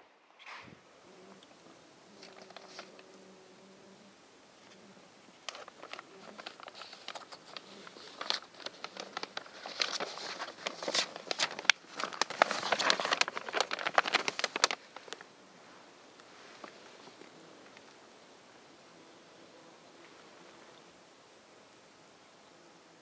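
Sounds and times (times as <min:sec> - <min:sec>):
close crinkling and crackling: 0:01.1 - 0:03.3, 0:04.6 - 0:18.1.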